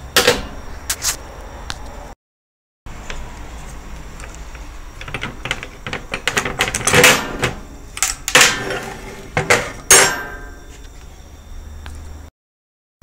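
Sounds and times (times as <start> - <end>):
metal parts clanking down: 5.0 - 10.6
metal-on-metal clatter: 5.0 - 10.6.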